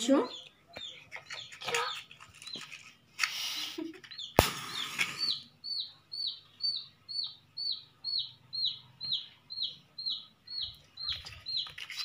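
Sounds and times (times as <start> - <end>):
bird chirping: 0.0 - 12.0
match striking and flaring: 4.4 - 5.3.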